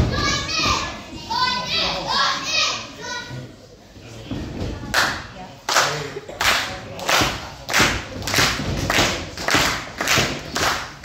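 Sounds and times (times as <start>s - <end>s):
rhythmic clapping in unison: 4.9s - 11.0s.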